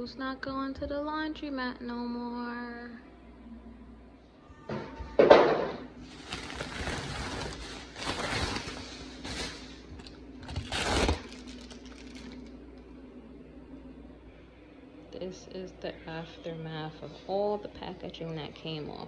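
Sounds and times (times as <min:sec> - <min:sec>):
plastic and cardboard packaging rustling: 0:06.0 - 0:12.6.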